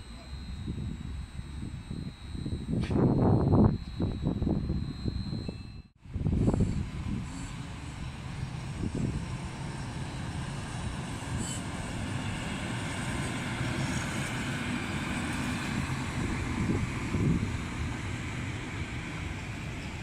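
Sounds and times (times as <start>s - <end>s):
diesel locomotive engine rumble: 0.0s - 20.0s
wheel and rail hiss: 6.3s - 20.0s.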